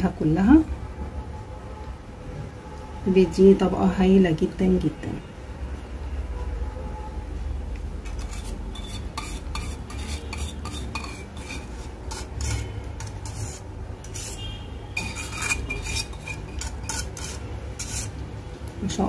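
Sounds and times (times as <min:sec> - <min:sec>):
spoon scraping a saucepan: 0:08.0 - 0:18.2.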